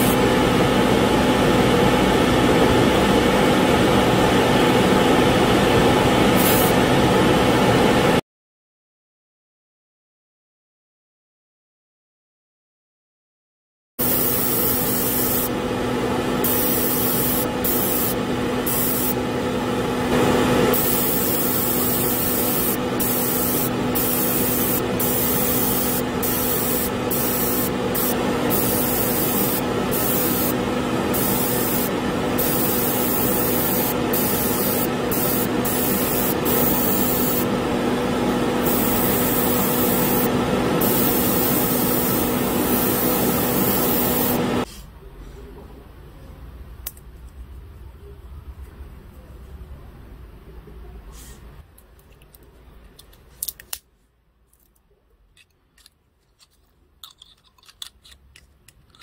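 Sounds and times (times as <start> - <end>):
exhaust fan hum: 0.0 - 8.2, 14.0 - 45.9
airbrush hissing: 14.0 - 15.5, 16.4 - 19.2, 20.7 - 37.5, 38.6 - 44.7.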